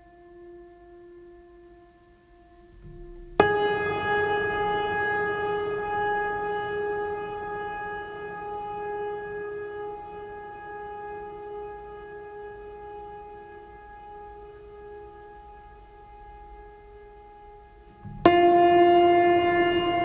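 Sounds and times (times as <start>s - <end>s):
soft held drone tone: 0.0s - 20.0s.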